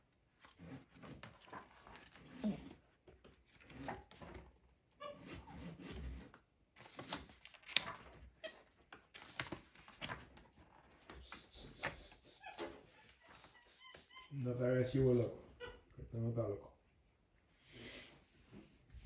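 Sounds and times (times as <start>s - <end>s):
book pages rustling: 0.2s - 13.6s.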